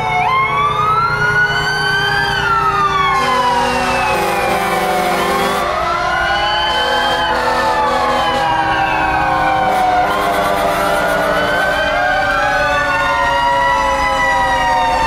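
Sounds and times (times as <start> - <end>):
fire truck sirens wailing: 0.0 - 15.0
deep horn: 3.1 - 5.8, 6.6 - 8.7, 9.5 - 11.8.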